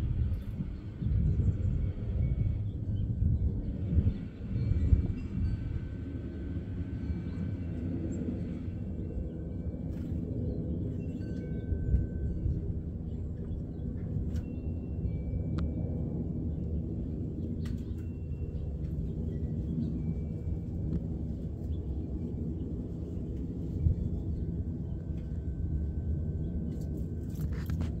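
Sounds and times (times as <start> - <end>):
low outdoor rumble: 0.0 - 28.0.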